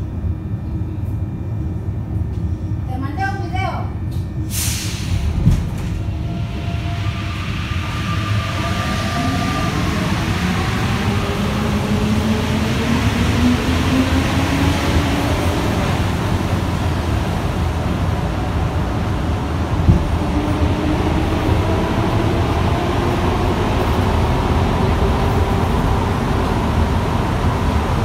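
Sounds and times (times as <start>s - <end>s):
train rolling rumble: 0.0s - 28.0s
traction motor whine rising: 5.8s - 28.0s.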